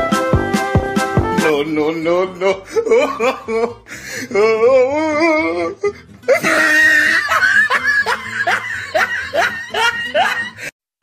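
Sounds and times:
background music: 0.0s - 10.7s
person laughing: 2.4s - 10.8s.

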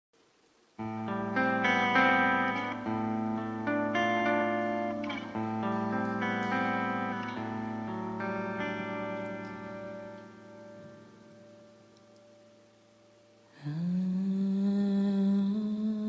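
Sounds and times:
electric guitar chords with effects: 0.8s - 13.5s.

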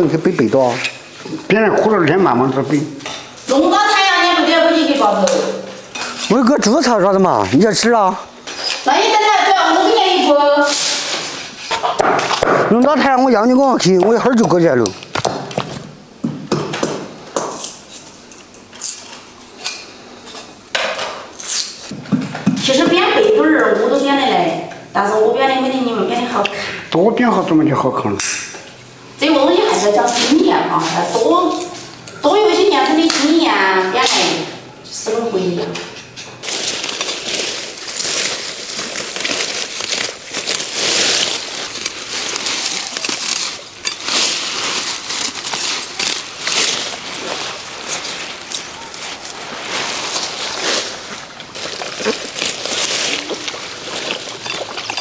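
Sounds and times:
kitchenware clattering: 5.8s - 6.5s, 42.9s - 44.9s, 53.2s - 55.0s
woven basket rustling and crackling: 36.4s - 55.0s.

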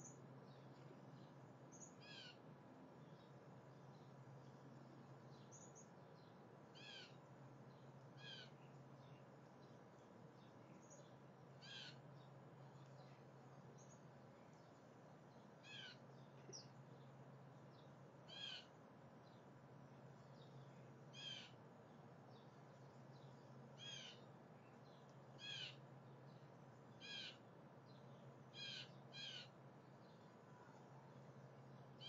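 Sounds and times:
steady low hum: 0.0s - 32.0s
blue jay calling: 1.7s - 2.4s, 6.7s - 7.2s, 8.2s - 8.7s, 10.8s - 12.2s, 15.6s - 16.7s, 18.3s - 18.8s, 21.1s - 21.6s, 23.8s - 24.3s, 25.4s - 25.9s, 26.9s - 27.4s, 28.5s - 29.6s.

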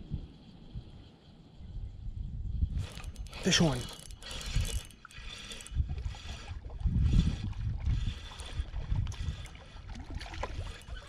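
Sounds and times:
wind buffeting microphone: 0.0s - 11.0s
spinning reel whirring: 2.7s - 9.8s, 10.4s - 11.0s.

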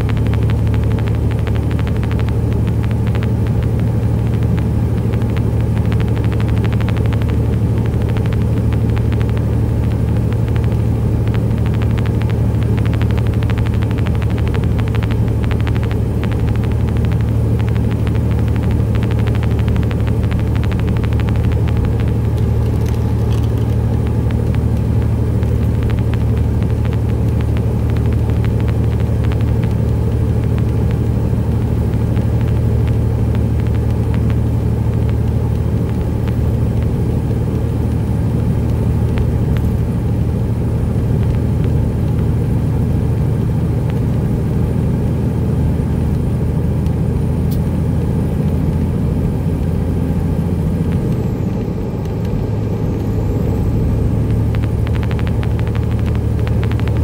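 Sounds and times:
diesel truck engine drone: 0.0s - 57.0s.

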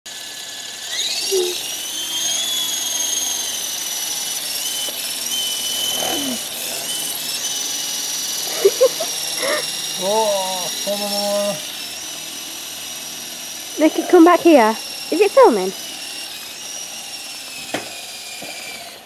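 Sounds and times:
rc helicopter whine: 0.1s - 19.0s.

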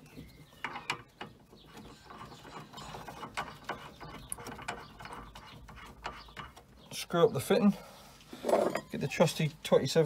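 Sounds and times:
metal clicks and scrapes: 0.6s - 6.8s.

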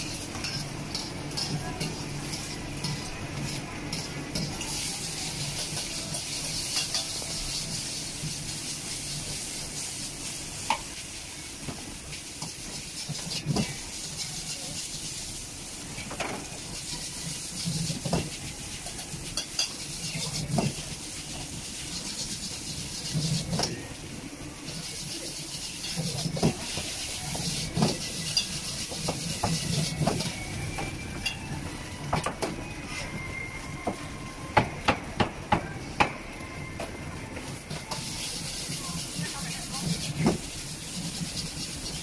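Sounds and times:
ladle scraping and clanking wok: 0.0s - 10.0s, 24.6s - 30.4s, 37.7s - 42.0s
food sizzling in a wok: 0.0s - 42.0s.

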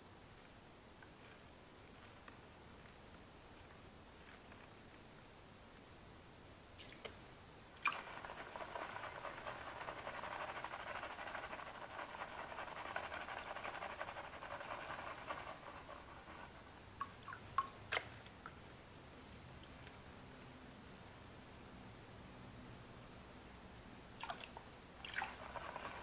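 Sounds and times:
gravel swishing in a plastic pan: 7.9s - 16.6s, 25.2s - 26.0s.

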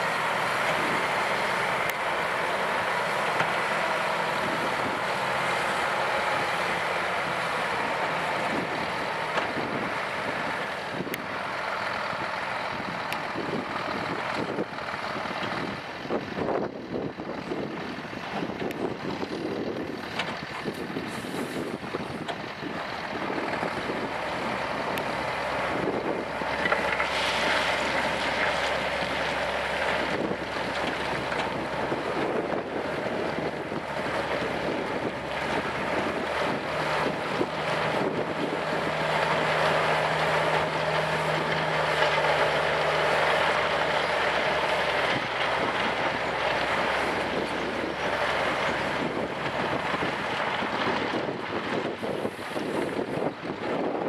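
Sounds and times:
truck diesel engine running: 0.0s - 54.0s
wind on microphone: 46.9s - 54.0s.

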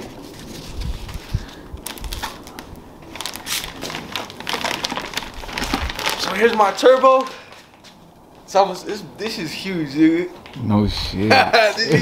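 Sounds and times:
plastic wrapping crinkling: 0.0s - 8.1s.

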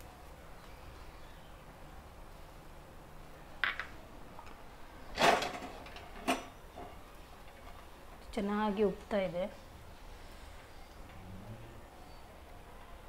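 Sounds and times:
low steady background noise: 0.0s - 13.0s
kitchen utensils clattering: 5.1s - 6.6s.

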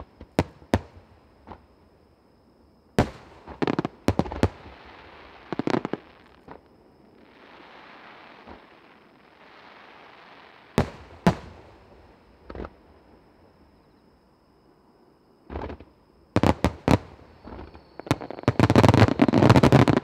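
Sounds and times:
faint hiss: 0.0s - 20.0s
fireworks bangs: 15.5s - 20.0s.

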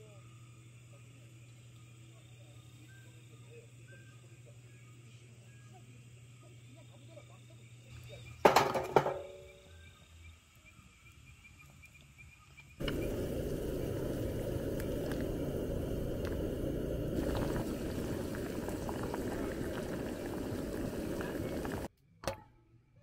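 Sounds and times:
water boiling in a pot: 12.8s - 21.9s.

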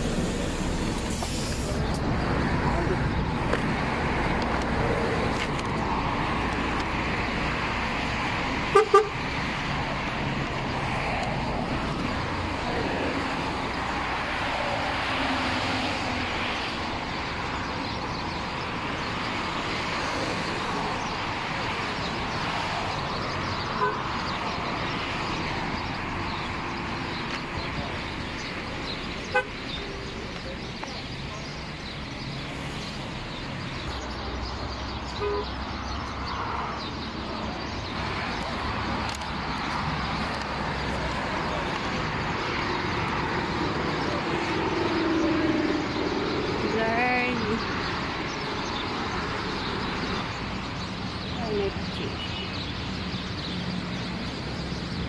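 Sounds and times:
city street traffic: 0.0s - 55.0s
vehicle horn toot: 8.7s - 9.2s, 23.8s - 24.0s, 29.3s - 29.6s, 35.2s - 35.5s.

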